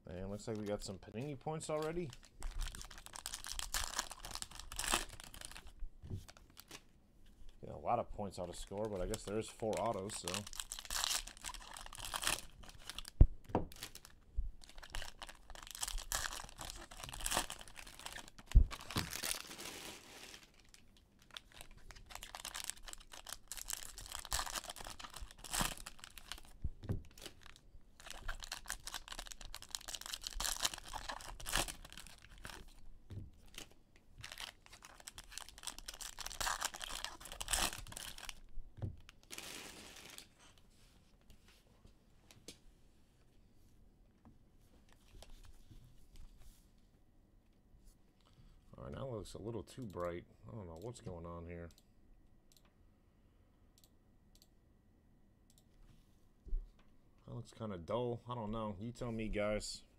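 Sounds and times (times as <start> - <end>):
foil wrappers tearing and crinkling: 2.1 - 5.7, 9.1 - 13.1, 13.7 - 26.5, 27.1 - 32.8, 33.5 - 38.4, 39.2 - 40.3.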